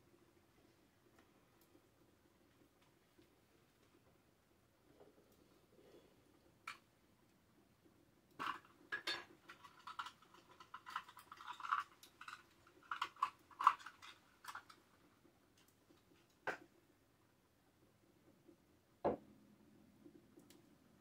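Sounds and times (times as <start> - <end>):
small objects clinking on wood: 8.4 - 14.8.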